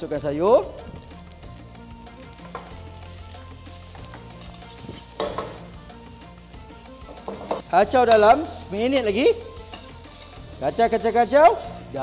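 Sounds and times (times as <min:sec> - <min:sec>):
rice sizzling in a wok: 0:00.0 - 0:12.0
metal ladle scraping a wok: 0:07.0 - 0:08.8, 0:09.5 - 0:10.4.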